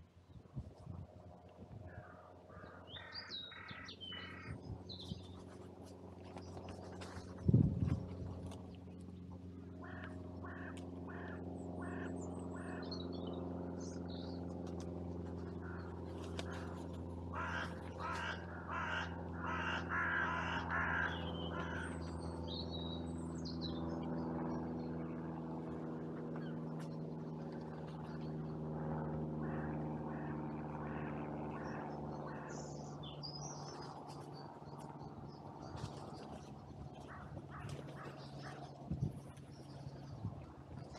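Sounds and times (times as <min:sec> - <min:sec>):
steady low hum: 0:00.0 - 0:40.9
crows cawing: 0:01.9 - 0:04.5, 0:09.7 - 0:12.9, 0:15.5 - 0:22.1, 0:29.4 - 0:32.7, 0:37.0 - 0:38.6.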